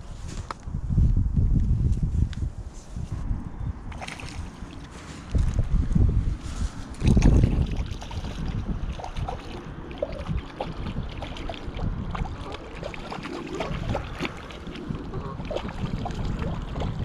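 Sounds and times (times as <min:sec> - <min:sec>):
wind rumbling on microphone: 0:00.0 - 0:17.0
fish splashing in water: 0:03.9 - 0:05.0, 0:07.0 - 0:17.0.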